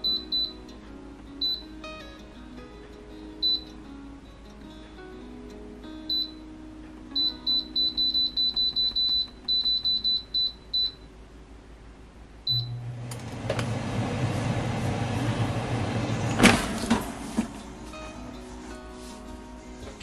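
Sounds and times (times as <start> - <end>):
fan motor humming: 0.0 - 20.0.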